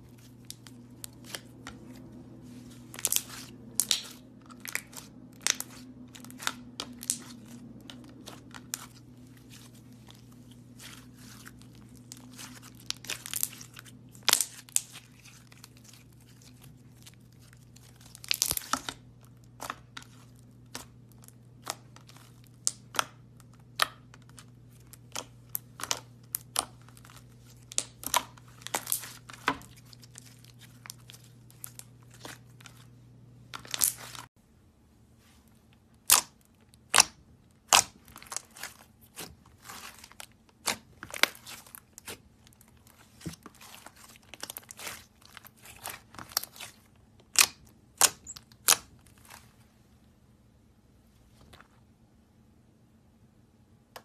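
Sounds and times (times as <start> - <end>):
slime popping and crackling: 2.8 - 16.2, 18.0 - 32.4, 36.0 - 49.0.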